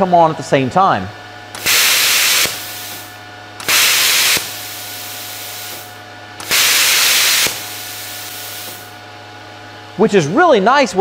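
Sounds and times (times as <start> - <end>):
compressed air rushing through torch: 1.6 - 8.9
torch trigger click: 1.6 - 8.9.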